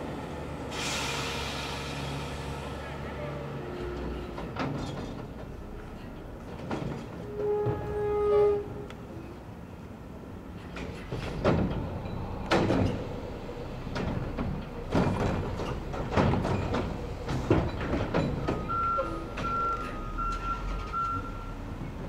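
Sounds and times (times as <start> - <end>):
reversing beeper: 18.6 - 21.6.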